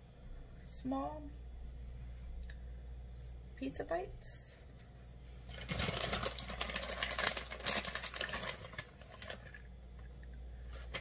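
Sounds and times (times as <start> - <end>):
plastic bag crinkling: 5.5 - 9.7.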